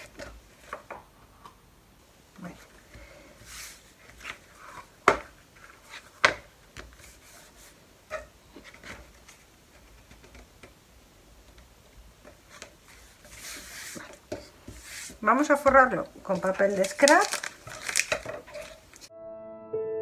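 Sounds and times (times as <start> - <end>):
paper rustling and scraping: 3.4 - 10.1, 12.4 - 19.1.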